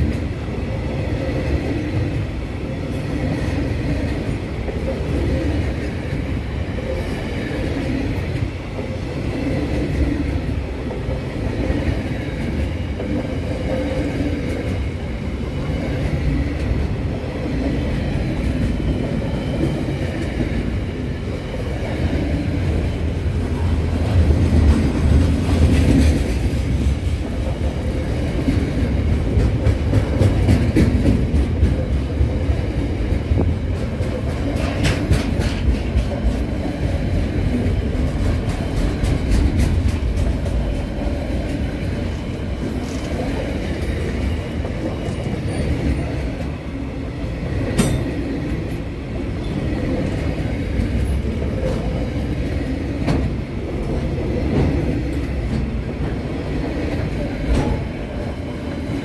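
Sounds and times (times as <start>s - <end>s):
train wheels rumbling on rail: 0.0s - 59.0s.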